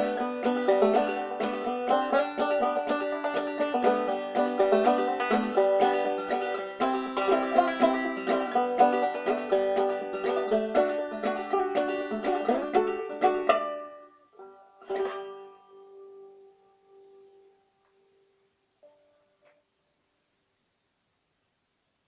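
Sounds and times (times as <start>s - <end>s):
banjo playing: 0.0s - 17.5s.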